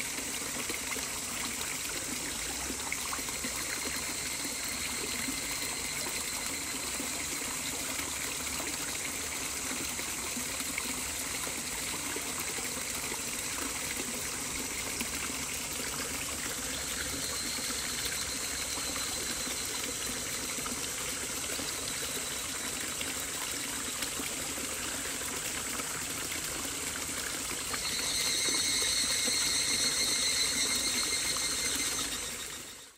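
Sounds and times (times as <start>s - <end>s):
flowing water: 0.0s - 32.9s
faint high-pitched tones: 2.3s - 7.8s, 16.5s - 24.0s, 27.6s - 32.9s.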